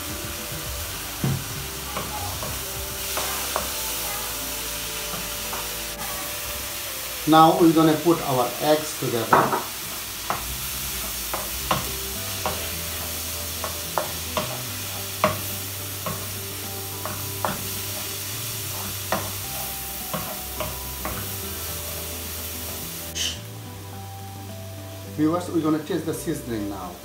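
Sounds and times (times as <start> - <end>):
rice sizzling in a wok: 0.0 - 27.0
spatula tapping pan: 1.2 - 6.0, 9.2 - 21.7.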